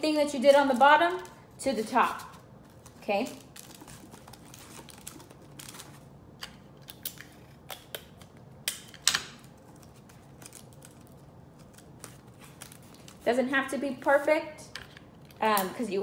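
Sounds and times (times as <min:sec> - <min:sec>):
paper crinkling: 0:00.3 - 0:06.1, 0:09.5 - 0:13.4
sharp paper crackle: 0:00.4 - 0:06.0, 0:09.5 - 0:13.3.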